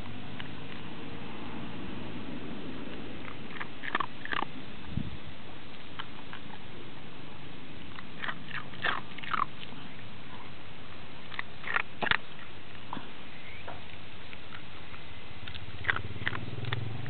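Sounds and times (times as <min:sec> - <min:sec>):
dog crunching ice chips: 0:02.8 - 0:04.7, 0:07.8 - 0:10.2, 0:11.2 - 0:17.0.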